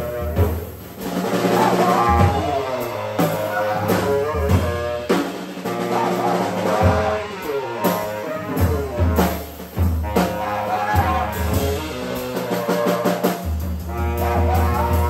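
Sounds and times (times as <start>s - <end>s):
drum strikes and cymbal hits: 0.0s - 15.0s
saxophone melody: 0.0s - 15.0s.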